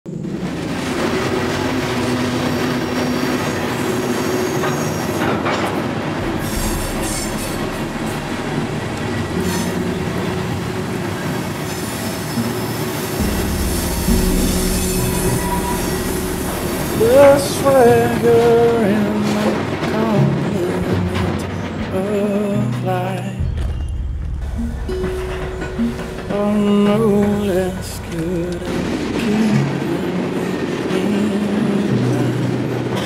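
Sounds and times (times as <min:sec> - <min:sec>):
freight train rolling: 0:00.1 - 0:33.0
steel wheels squealing on rail: 0:00.2 - 0:33.0
deep rumble: 0:06.1 - 0:11.8, 0:13.2 - 0:19.2, 0:23.4 - 0:29.4.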